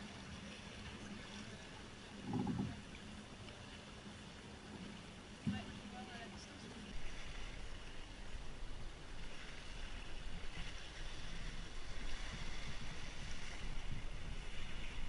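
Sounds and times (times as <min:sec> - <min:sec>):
water rushing along hull: 0:00.0 - 0:15.0
wind buffeting microphone: 0:06.9 - 0:15.0.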